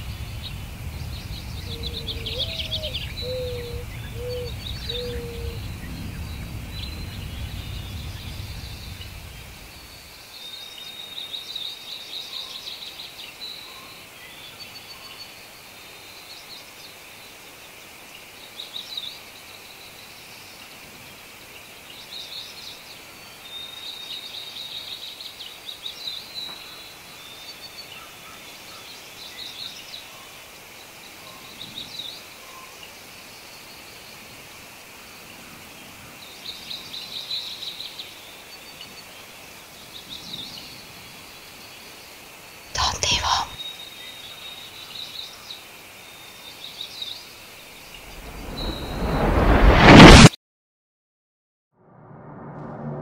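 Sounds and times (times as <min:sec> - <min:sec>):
birds chirping: 0:00.0 - 0:10.0
outdoor background hiss: 0:00.0 - 0:49.5.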